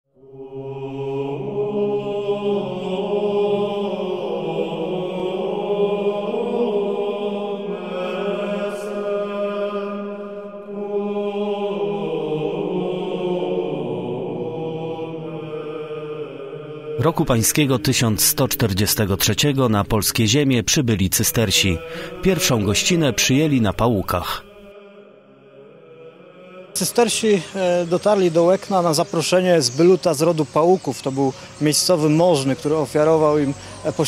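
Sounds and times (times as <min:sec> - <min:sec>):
slow vocal chant: 0:00.2 - 0:34.0.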